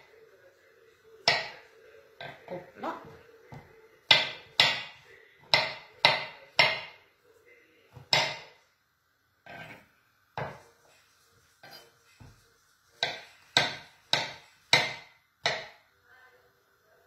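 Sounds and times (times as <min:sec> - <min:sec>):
knife slicing mushrooms: 0:09.5 - 0:15.8.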